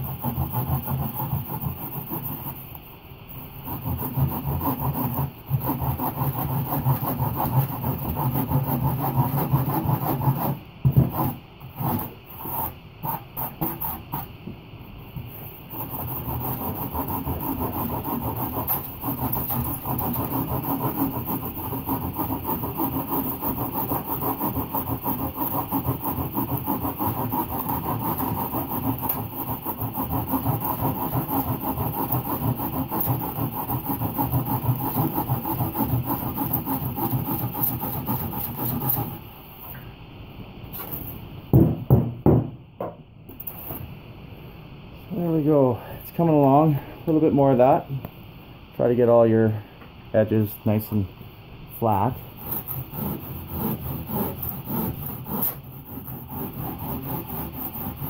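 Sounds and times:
sanding block scraping foam: 0.0s - 2.8s, 3.4s - 14.3s, 15.3s - 39.3s, 52.2s - 58.0s.

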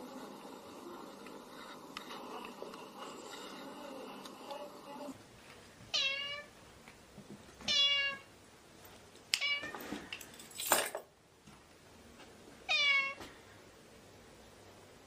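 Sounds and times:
cat meowing: 5.9s - 6.5s, 7.7s - 8.3s, 12.7s - 13.2s.

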